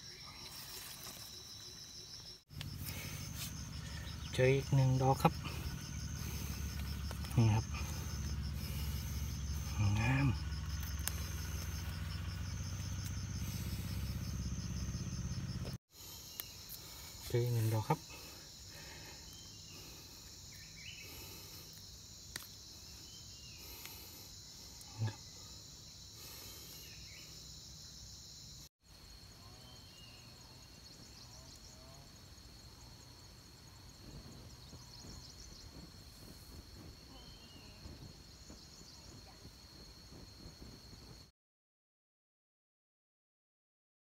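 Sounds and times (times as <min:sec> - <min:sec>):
faint chirps: 0:00.0 - 0:28.0, 0:34.1 - 0:41.0
high-pitched insect chorus: 0:00.0 - 0:41.3.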